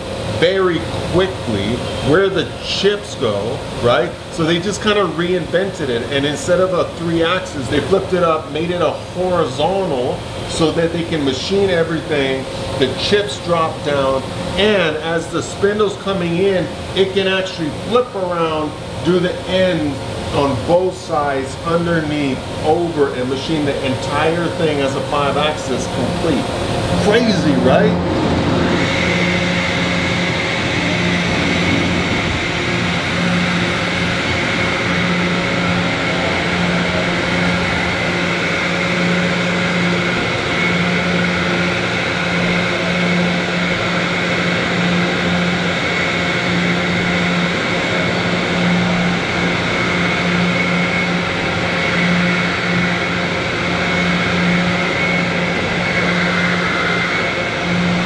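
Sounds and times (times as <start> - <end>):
faint high whine: 0.0 - 58.0
machine mechanical hum: 0.0 - 58.0.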